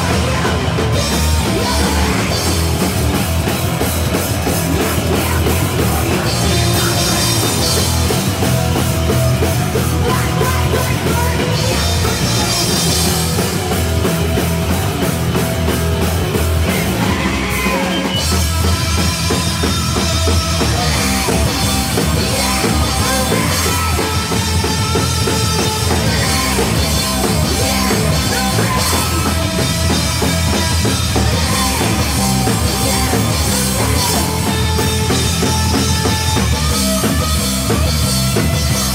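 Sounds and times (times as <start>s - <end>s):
person singing into microphone: 0.0s - 2.6s, 10.0s - 13.1s, 20.7s - 24.6s, 25.7s - 34.8s
live rock band playing: 0.0s - 38.9s.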